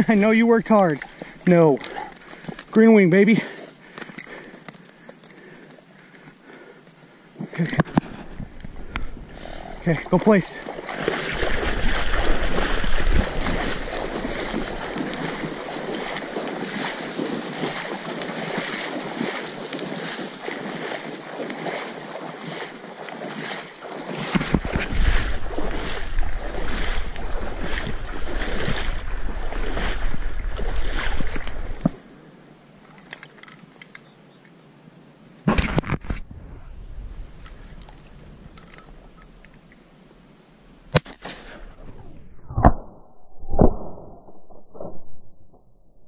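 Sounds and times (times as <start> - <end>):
wind buffeting microphone: 7.9 - 20.2, 24.2 - 32.0, 36.2 - 39.2
dog swimming splashing water: 8.4 - 32.0
low hiss: 36.2 - 41.7.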